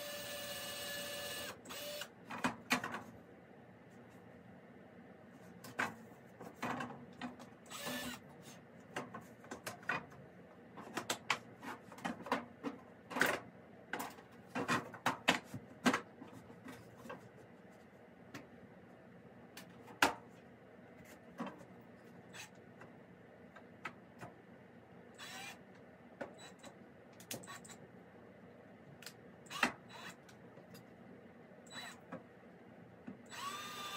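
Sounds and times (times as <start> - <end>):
power drill boring into wood: 7.7 - 8.2, 33.3 - 33.9.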